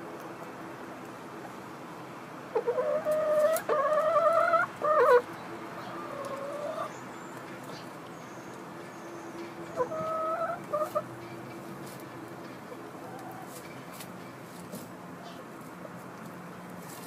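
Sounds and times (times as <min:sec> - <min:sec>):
chicken calling: 0:02.5 - 0:07.0, 0:09.7 - 0:11.1.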